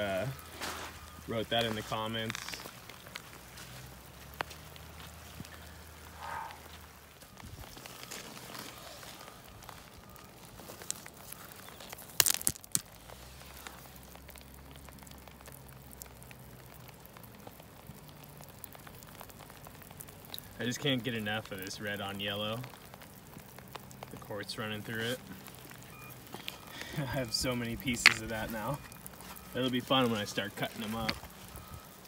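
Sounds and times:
stones clacking together: 0:10.7 - 0:13.0, 0:24.0 - 0:31.6.

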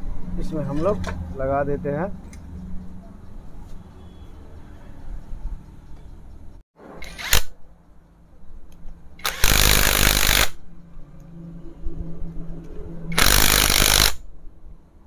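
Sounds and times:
impact wrench running in bursts: 0:09.2 - 0:10.6, 0:13.2 - 0:14.2.

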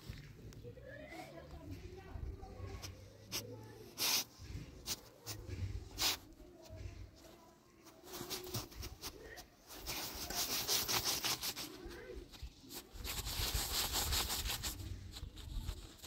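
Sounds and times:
rough scraping strokes: 0:08.0 - 0:16.0.

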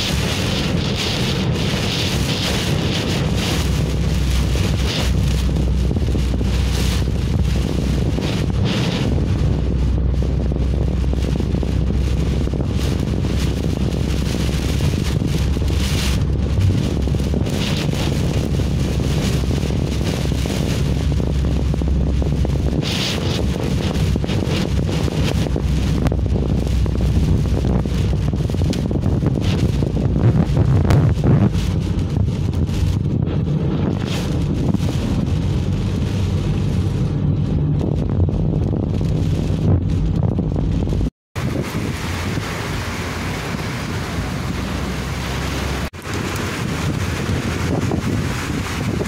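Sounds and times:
car rumble on wet road: 0:00.0 - 0:49.0
wind and rain hissing: 0:00.0 - 0:49.0
wind buffeting microphone: 0:00.0 - 0:49.0.

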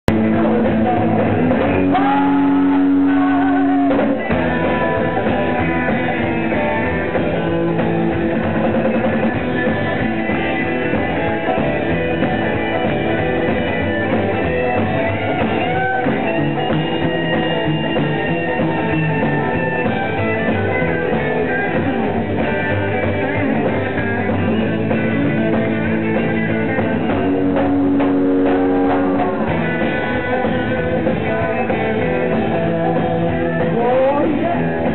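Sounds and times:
live rock and roll band: 0:00.1 - 0:34.9.

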